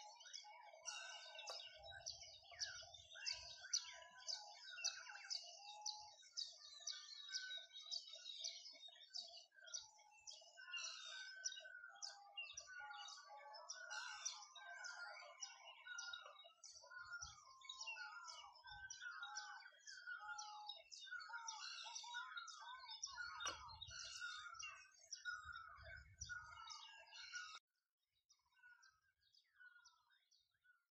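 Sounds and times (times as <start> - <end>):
songbirds chirping and singing: 0.0 - 30.9.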